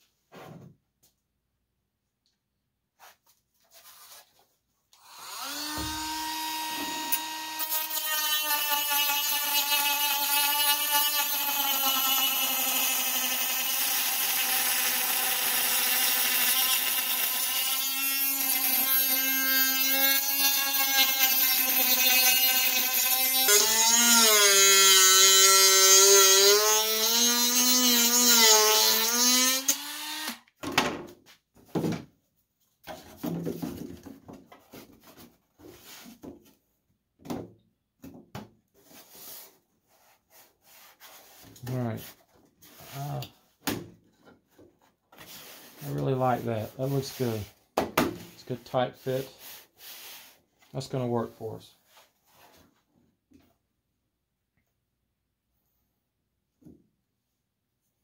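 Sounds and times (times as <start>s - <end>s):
rotary tool cutting plywood: 5.0s - 30.4s.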